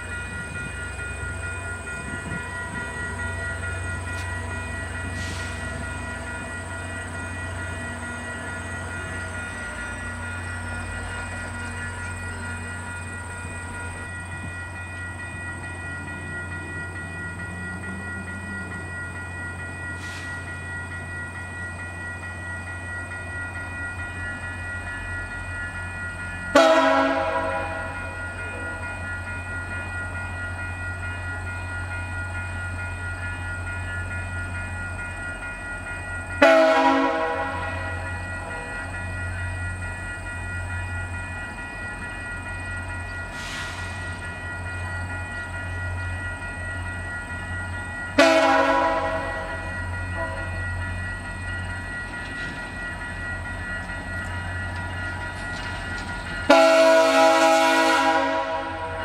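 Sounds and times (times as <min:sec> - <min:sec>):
diesel locomotive idling: 0:00.0 - 0:59.0
locomotive horn blasts: 0:26.5 - 0:28.0, 0:36.4 - 0:38.0, 0:48.2 - 0:49.6, 0:56.5 - 0:59.0.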